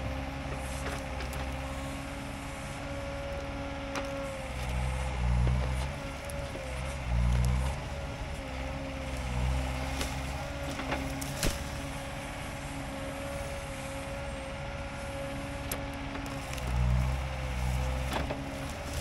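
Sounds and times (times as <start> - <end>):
excavator engine running under load: 0.0 - 19.0
roots tearing out of ground: 9.2 - 12.1, 16.2 - 19.0.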